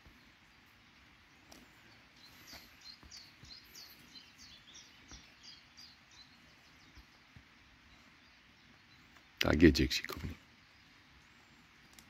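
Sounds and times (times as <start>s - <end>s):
faint outdoor hiss: 0.0s - 12.0s.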